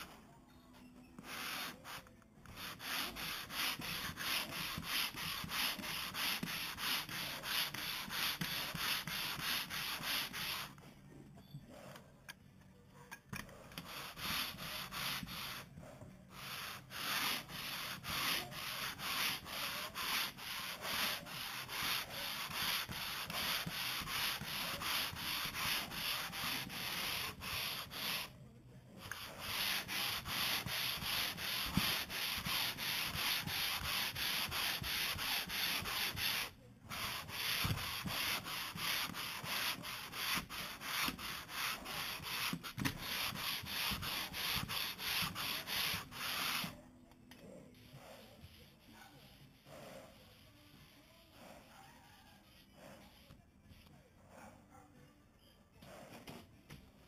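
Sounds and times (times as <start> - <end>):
sandpaper rasping on boat hull: 1.2 - 10.8, 13.5 - 28.4, 29.0 - 46.8.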